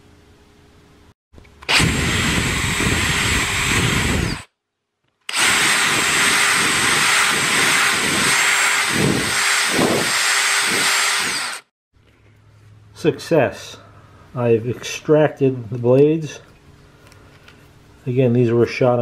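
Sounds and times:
electric drill boring into wood: 1.6 - 4.5, 5.3 - 11.7.

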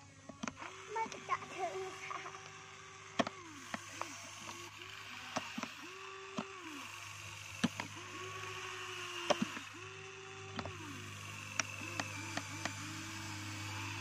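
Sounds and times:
toy electric motors whining: 0.0 - 14.0
sharp plastic clicks: 0.3 - 14.0.

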